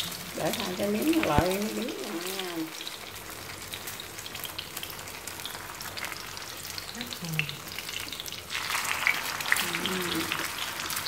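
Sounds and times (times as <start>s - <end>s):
chopsticks and spatula stirring: 0.0s - 6.3s
tofu skin sizzling in oil: 0.0s - 11.0s.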